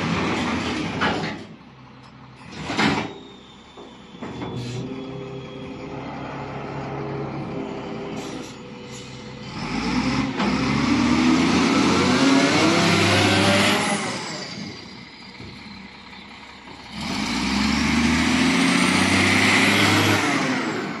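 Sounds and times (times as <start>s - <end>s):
diesel engine idling and revving: 0.0s - 21.0s.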